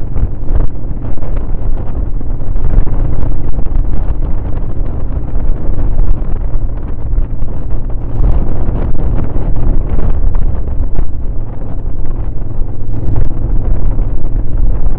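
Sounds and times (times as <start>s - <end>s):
motorcycle engine running: 0.0s - 14.9s
wind buffeting microphone: 0.0s - 14.9s.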